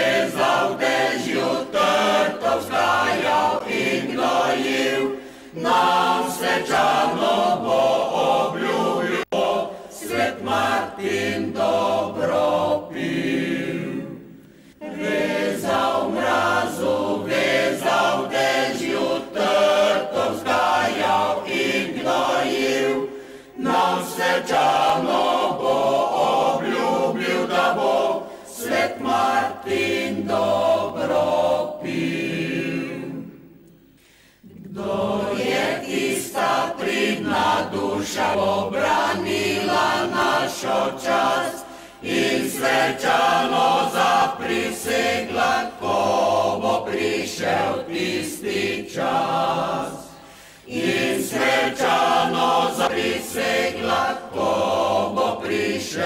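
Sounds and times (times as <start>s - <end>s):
mixed choir singing a cappella: 0.0s - 33.6s, 34.4s - 56.0s
singers breathing: 5.1s - 5.6s, 9.7s - 9.9s, 14.3s - 14.9s, 23.1s - 23.6s, 28.2s - 28.6s, 33.9s - 34.6s, 41.6s - 42.1s, 50.1s - 50.8s.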